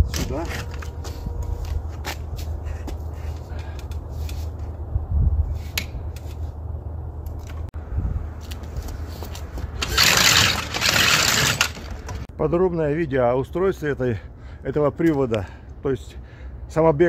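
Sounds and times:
steady low rumble: 0:00.0 - 0:09.8.

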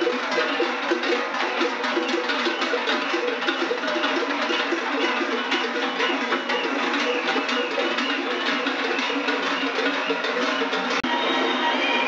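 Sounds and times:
cowbells clanging: 0:00.0 - 0:12.0.

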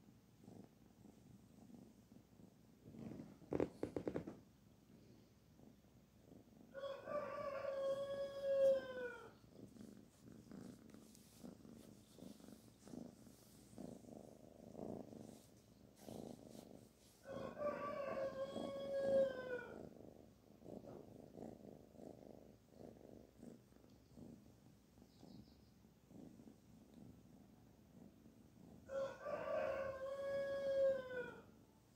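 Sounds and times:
kitten purring: 0:00.0 - 0:07.0, 0:07.6 - 0:29.2
kitten long drawn-out calls: 0:06.8 - 0:09.4, 0:17.2 - 0:19.8, 0:28.9 - 0:31.5.

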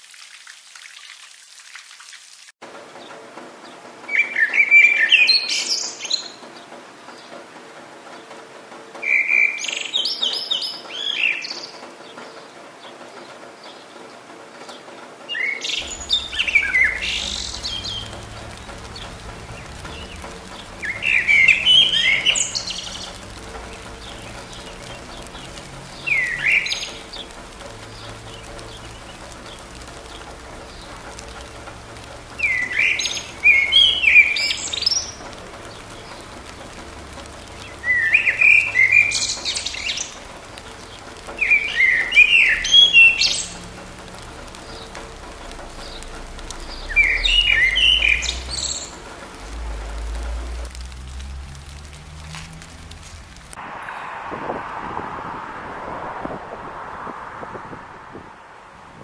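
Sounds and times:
light rain hiss: 0:00.0 - 0:59.0
songbird singing: 0:02.9 - 0:08.4, 0:09.0 - 0:59.0.

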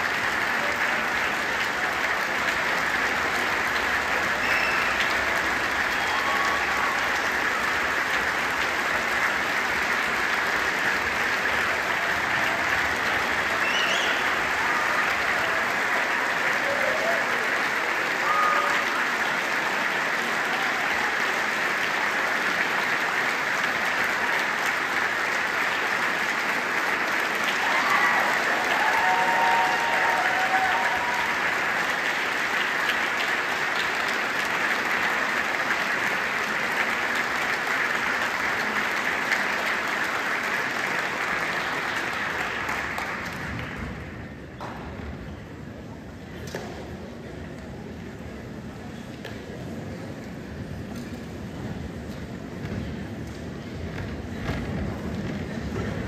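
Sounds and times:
audience applause: 0:00.0 - 0:44.5
crowd calling out: 0:27.6 - 0:31.5.

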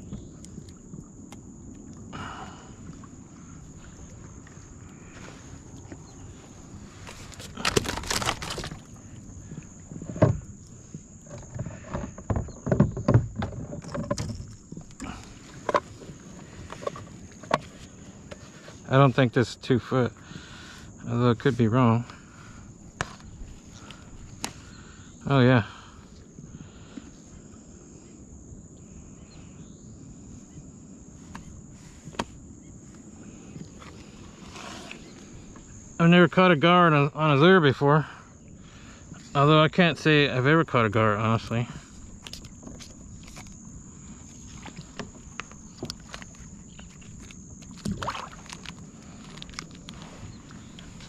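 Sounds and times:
rustling: 0:05.1 - 0:09.1.

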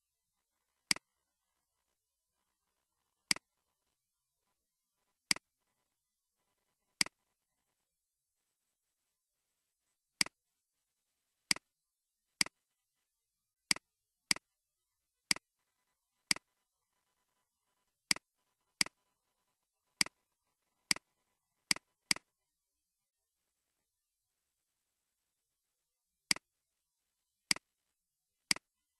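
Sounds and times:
mouse clicks: 0:00.9 - 0:01.1, 0:03.3 - 0:03.5, 0:05.3 - 0:05.5, 0:11.5 - 0:11.7, 0:13.7 - 0:14.5, 0:15.3 - 0:15.5, 0:16.3 - 0:16.5, 0:18.1 - 0:19.0, 0:20.9 - 0:21.1, 0:21.7 - 0:22.3, 0:26.3 - 0:26.5, 0:27.5 - 0:27.7, 0:28.5 - 0:28.7.

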